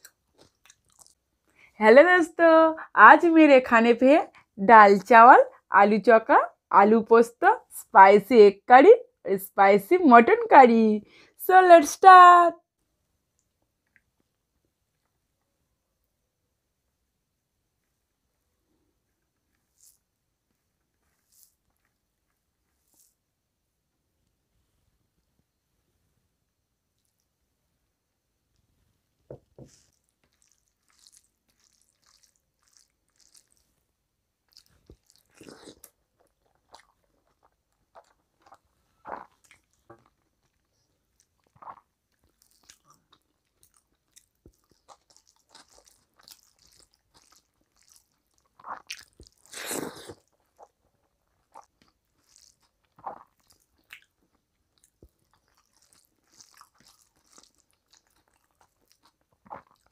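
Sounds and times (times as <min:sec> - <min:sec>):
chewing and biting: 0:00.0 - 0:01.2, 0:29.7 - 0:33.8, 0:34.5 - 0:59.9.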